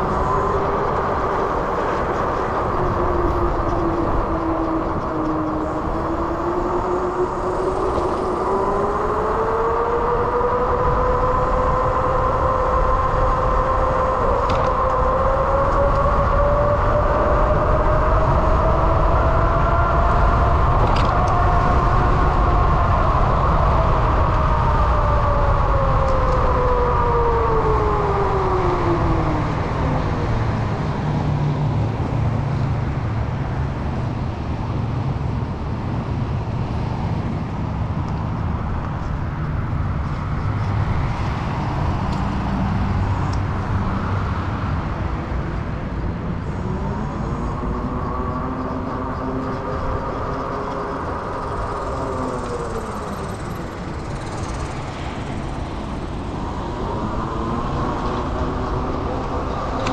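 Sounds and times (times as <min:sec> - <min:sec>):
wind and road rumble: 0:00.0 - 0:59.9.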